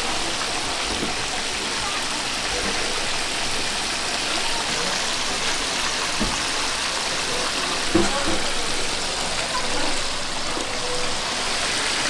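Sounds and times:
food deep-frying in hot oil: 0.0s - 12.0s.

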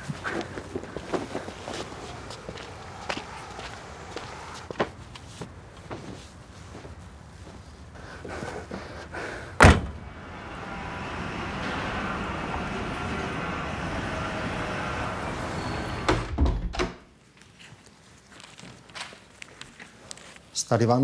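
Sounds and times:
loud slam: 9.6s - 10.1s.

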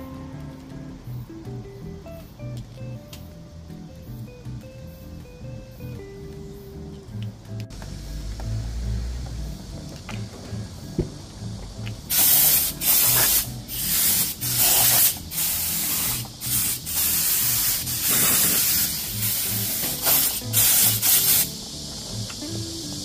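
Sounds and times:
faint background music: 0.0s - 23.0s
spray gun hissing: 12.1s - 21.9s.

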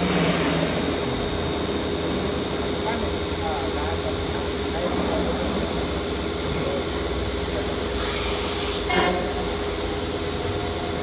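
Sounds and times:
compressed air hiss: 7.9s - 9.0s.

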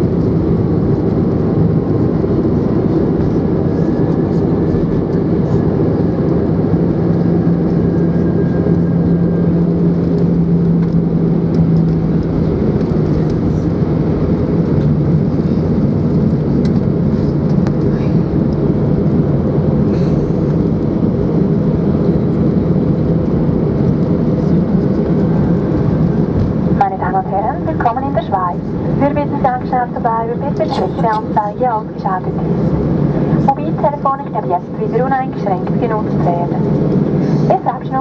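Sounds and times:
jet engines rumbling: 0.0s - 38.0s.

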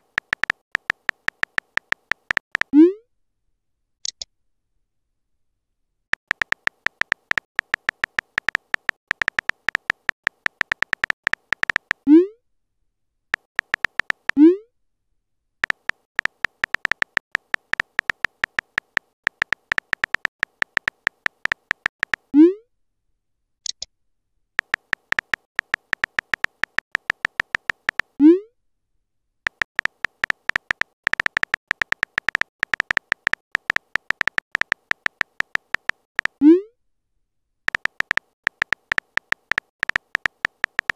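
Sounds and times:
phone keyboard typing clicks: 0.0s - 2.8s, 6.2s - 12.1s, 13.4s - 14.4s, 15.6s - 22.3s, 24.6s - 28.2s, 29.5s - 36.4s, 37.7s - 40.9s.

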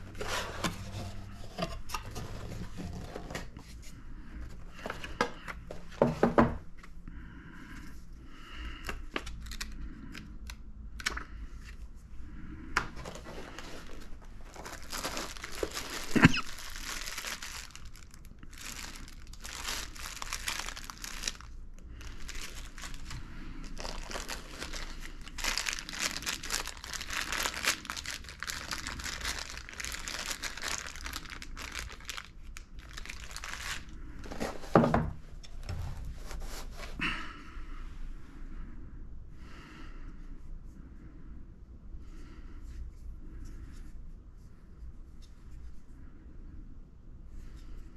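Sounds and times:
plastic packaging crinkling: 9.2s - 9.8s, 13.1s - 34.9s.

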